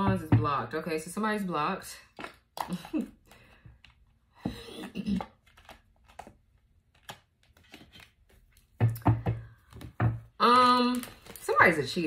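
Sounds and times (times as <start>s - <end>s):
cards clicking and rustling: 5.1s - 8.8s.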